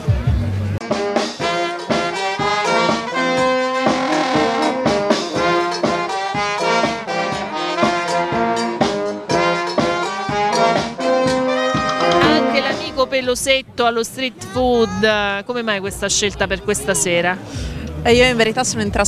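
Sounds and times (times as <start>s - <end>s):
tuba: 0.8s - 13.0s
saxophones: 0.8s - 13.2s
trumpet: 0.8s - 13.2s
bass drum steady beat: 14.4s - 19.0s.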